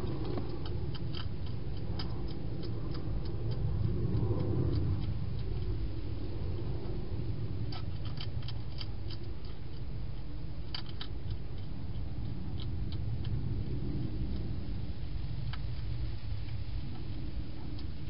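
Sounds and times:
hedgehog crunching food: 0.0s - 18.0s
low rumble: 0.0s - 18.0s.

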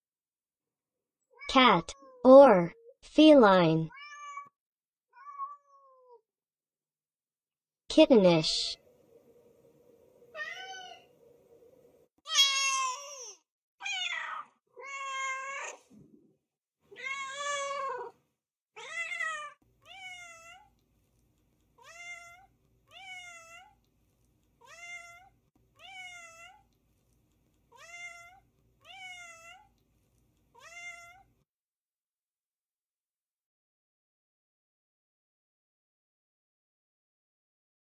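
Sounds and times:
cats meowing: 3.9s - 4.5s, 5.2s - 6.2s, 10.4s - 11.1s, 12.3s - 15.9s, 16.9s - 18.2s, 18.8s - 20.8s, 24.6s - 26.7s, 30.6s - 31.2s.

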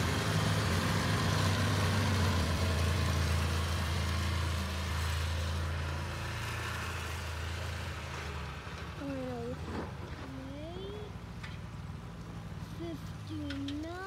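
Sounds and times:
snowmobile engine passing: 0.0s - 8.7s.

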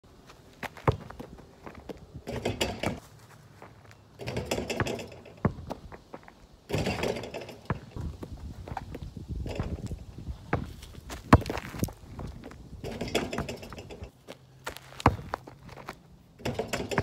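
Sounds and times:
basketball rim and pole rattling: 2.2s - 3.0s, 4.2s - 6.0s, 6.7s - 8.2s, 9.4s - 10.7s, 12.2s - 14.1s, 16.4s - 17.0s
footsteps in dry grass and leaves: 3.0s - 4.1s.

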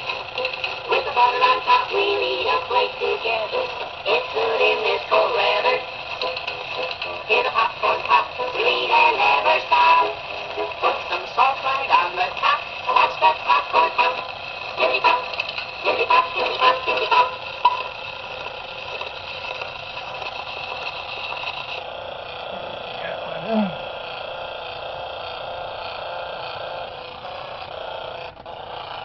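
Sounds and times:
thin singing and music: 0.8s - 17.7s
needle hiss in record groove: 0.9s - 17.4s.

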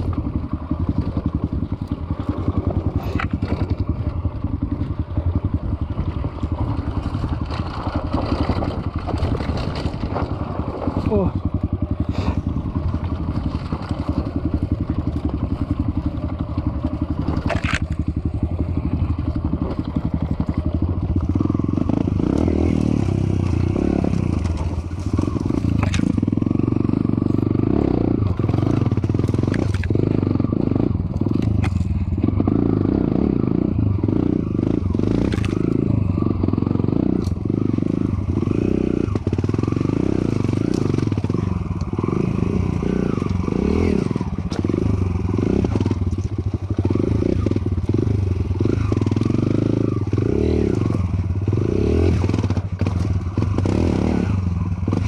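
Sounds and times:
dirt bike engine chugging: 0.0s - 55.0s
rocks knocking against bike: 12.8s - 18.2s, 24.2s - 26.4s, 28.6s - 30.0s, 31.1s - 32.0s.

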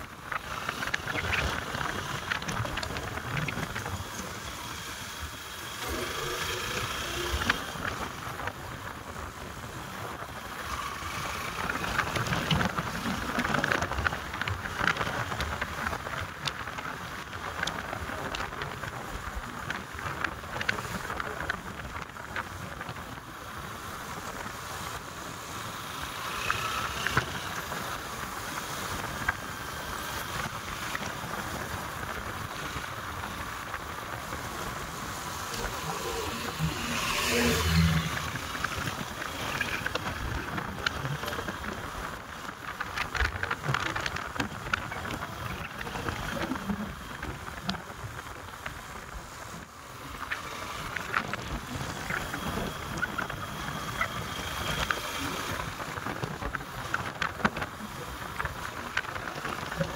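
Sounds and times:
knocks and crackles: 0.0s - 9.2s, 26.5s - 59.9s
wind rushing over microphone: 0.0s - 59.9s
vehicle running: 25.4s - 44.4s.

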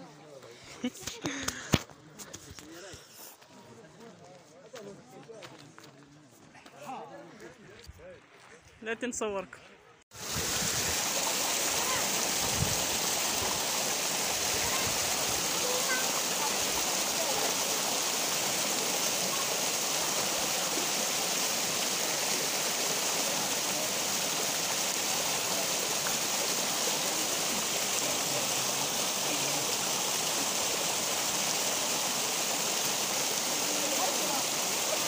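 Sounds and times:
waterfall splashing over rocks: 10.1s - 35.0s.

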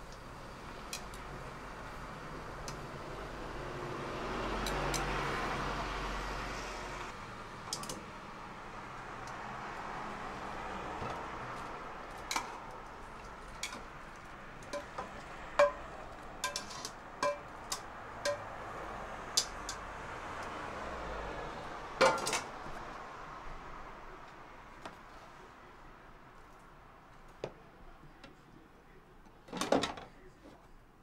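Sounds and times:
steady background noise: 0.0s - 31.0s
utensils clinking against dishes: 14.7s - 15.8s, 16.4s - 18.5s.

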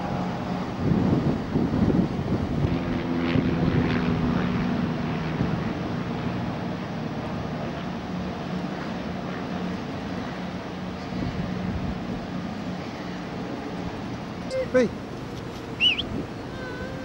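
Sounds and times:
wind buffeting microphone: 0.0s - 7.0s, 10.7s - 17.0s
engines idling hum: 0.0s - 17.0s.

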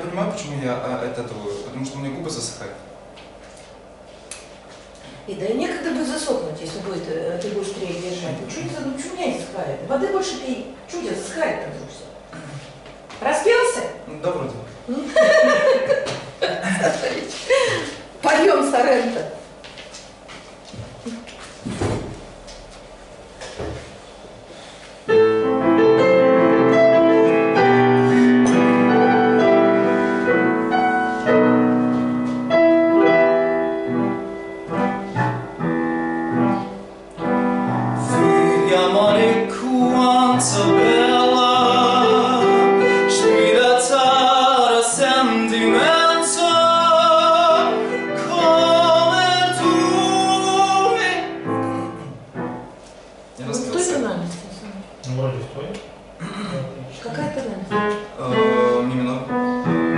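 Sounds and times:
piano playing: 25.1s - 52.9s, 57.2s - 59.9s
operatic singing with vibrato: 38.1s - 52.0s.

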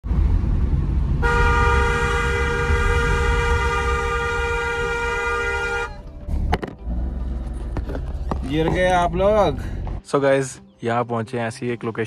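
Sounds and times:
moving car rumble: 0.0s - 10.0s
car horn blast: 1.2s - 6.0s.

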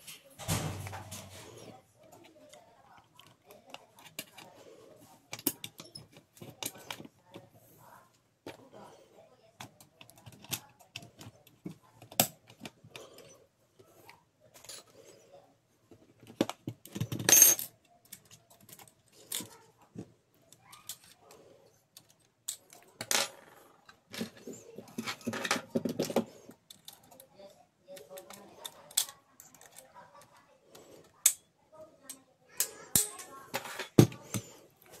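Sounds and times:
printer parts clicking and rattling: 5.2s - 7.5s, 9.5s - 13.4s, 16.0s - 19.7s, 27.9s - 30.4s.

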